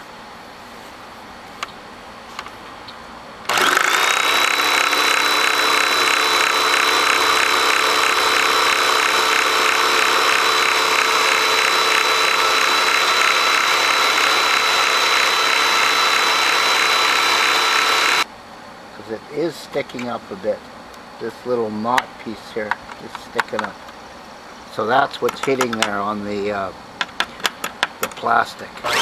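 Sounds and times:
vacuum cleaner motor whining: 3.5s - 18.3s.

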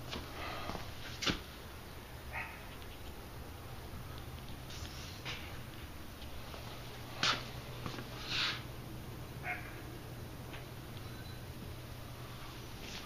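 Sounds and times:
steady low hum: 0.0s - 13.0s
soft brushing handling rustles: 12.2s - 13.0s.

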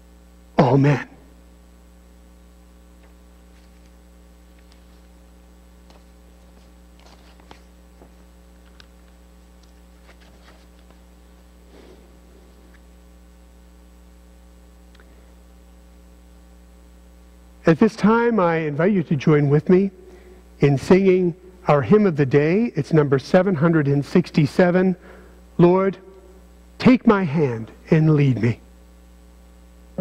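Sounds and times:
electrical mains hum: 0.0s - 30.0s
paper rustling and clicks: 7.0s - 7.7s.

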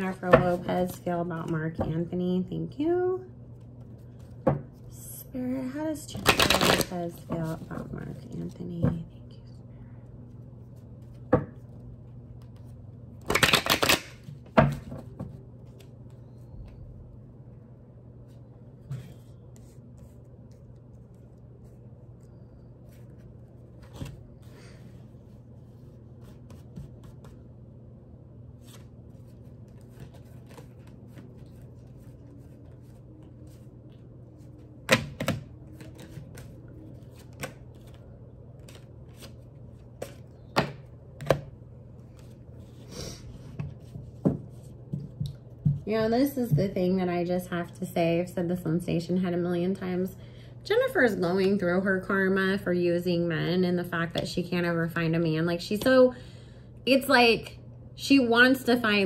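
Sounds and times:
steady low hum: 0.0s - 13.3s, 14.0s - 59.0s
cards shuffling: 6.2s - 7.7s, 12.4s - 16.2s, 28.6s - 34.0s, 34.6s - 41.4s.

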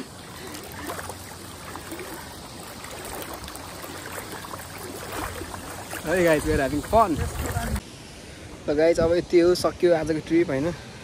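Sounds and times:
shallow water sloshing and trickling: 0.0s - 7.8s.

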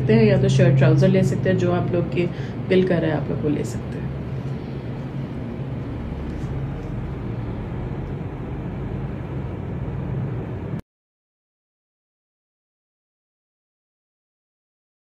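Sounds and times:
faint hum: 0.0s - 10.8s
low rumbling background noise: 0.0s - 10.8s.

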